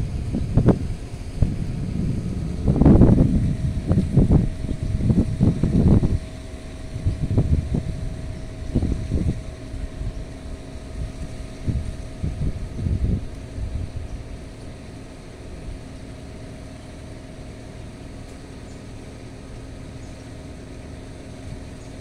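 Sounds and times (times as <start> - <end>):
wind buffeting microphone: 0.0 - 15.9
faint steady hum: 0.0 - 22.0.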